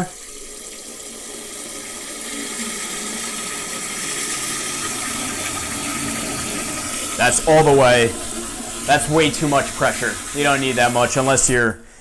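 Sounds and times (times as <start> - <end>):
sprayer water hissing into toilet: 0.0 - 12.0.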